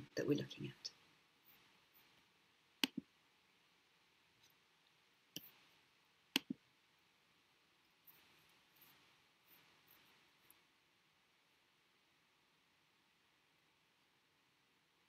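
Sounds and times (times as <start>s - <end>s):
computer mouse clicks: 2.8s - 3.1s, 5.3s - 5.6s, 6.4s - 6.6s.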